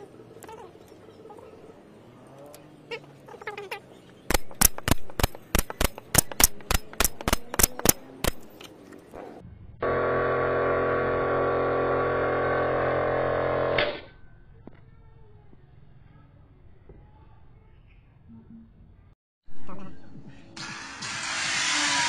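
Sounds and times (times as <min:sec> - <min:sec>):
brad nailer firing: 0:04.3 - 0:08.6.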